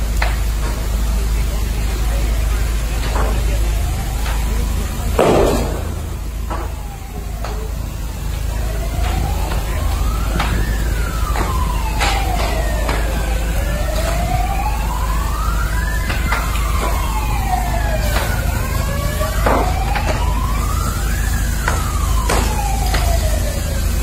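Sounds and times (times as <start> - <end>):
steady low rumble: 0.0 - 17.8
emergency vehicle sirens wailing: 0.0 - 24.0
sharp pops and cracks of fire: 0.0 - 24.0.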